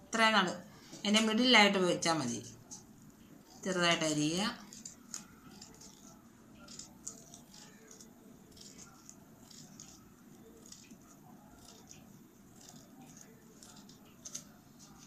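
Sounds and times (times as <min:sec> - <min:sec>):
scissors snipping paper: 0:03.5 - 0:15.0.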